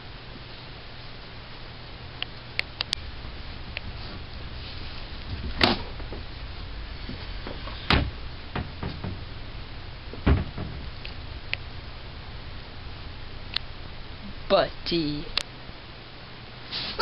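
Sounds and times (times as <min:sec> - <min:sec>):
steady low hiss: 0:00.0 - 0:17.0
loud dull knocks: 0:07.0 - 0:11.2
light knocks and clicks: 0:07.4 - 0:09.3, 0:10.1 - 0:11.6.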